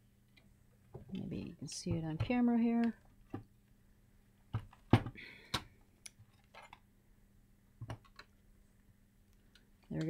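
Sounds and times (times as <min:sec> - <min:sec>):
clicks and knocks of equipment handling: 0:04.5 - 0:06.8.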